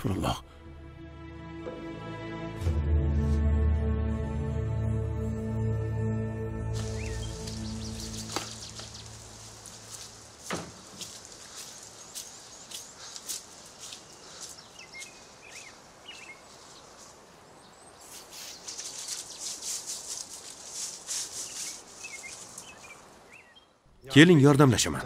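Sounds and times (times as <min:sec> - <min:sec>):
bird chirps: 0:06.8 - 0:10.2, 0:11.4 - 0:19.8, 0:21.4 - 0:24.1
rustling and scuffing: 0:06.8 - 0:17.4, 0:18.0 - 0:23.1.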